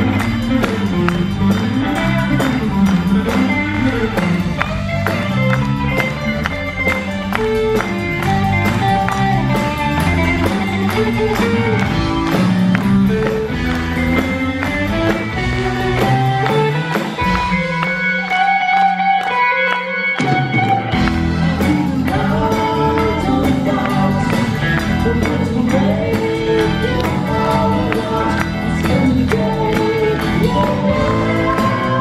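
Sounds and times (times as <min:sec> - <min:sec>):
live rock band playing: 0:00.0 - 0:32.0
singer singing: 0:21.2 - 0:32.0.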